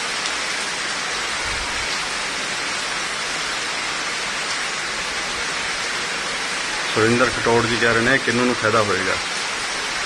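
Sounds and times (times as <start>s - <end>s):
heavy rain pouring: 0.0s - 10.0s.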